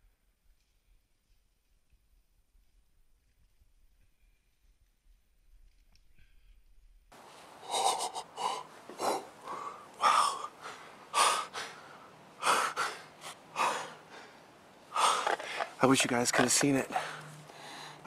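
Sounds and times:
man breathing hard: 7.5 - 15.8, 16.9 - 18.0.

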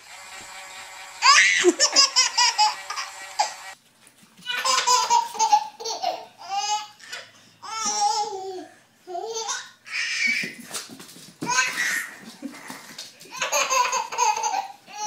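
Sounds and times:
second baby laughing: 1.2 - 3.5, 11.5 - 15.0
baby belly-laughing: 13.3 - 15.0.

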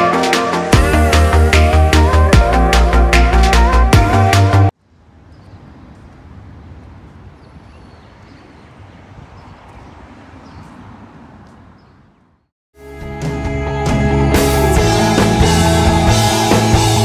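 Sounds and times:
music: 0.0 - 4.7, 12.8 - 17.0
distant traffic hum: 4.8 - 12.5.

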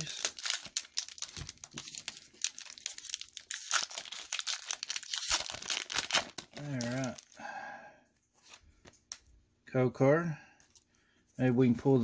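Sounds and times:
foil wrapper crinkling and tearing: 0.0 - 7.4.

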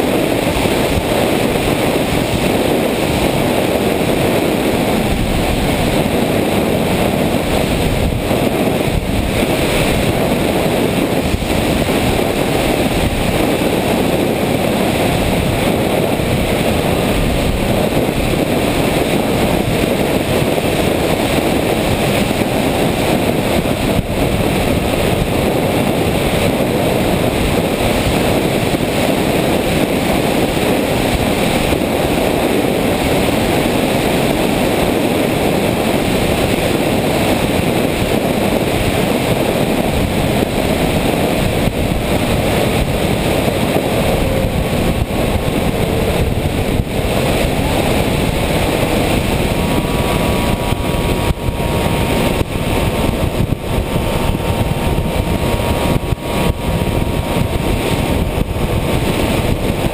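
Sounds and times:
wind rushing over microphone: 0.0 - 59.9.

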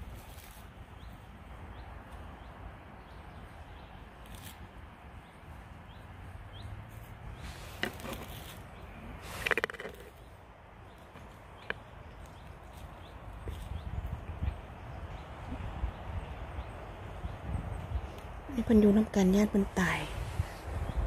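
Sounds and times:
wind rumbling on microphone: 0.0 - 21.0
clicks and rustles: 7.7 - 10.3.

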